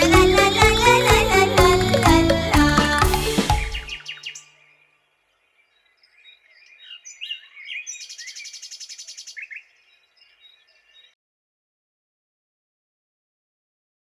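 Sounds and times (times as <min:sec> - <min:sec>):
birds chirping and trilling: 0:03.2 - 0:11.2.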